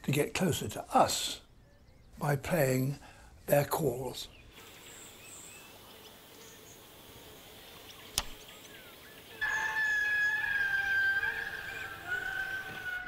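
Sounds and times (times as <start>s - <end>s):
indri song: 9.4s - 13.0s.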